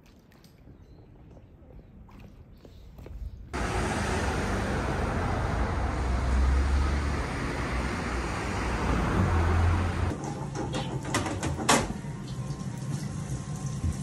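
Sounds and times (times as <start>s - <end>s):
road noise hiss: 3.6s - 10.1s
passing vehicles rumbling: 3.6s - 10.2s.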